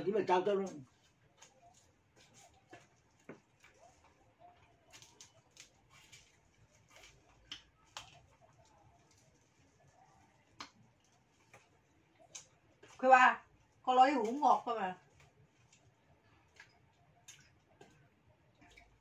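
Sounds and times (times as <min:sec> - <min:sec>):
person chewing: 0:00.9 - 0:09.8, 0:15.2 - 0:19.0
shrimp shells cracking: 0:04.8 - 0:09.2.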